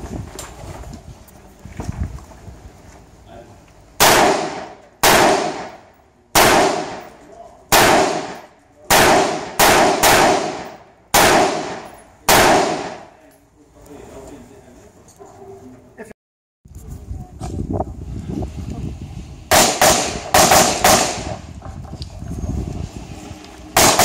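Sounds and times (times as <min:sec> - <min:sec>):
rifle shots echoing: 0:04.0 - 0:13.2, 0:19.5 - 0:21.4, 0:23.8 - 0:24.0.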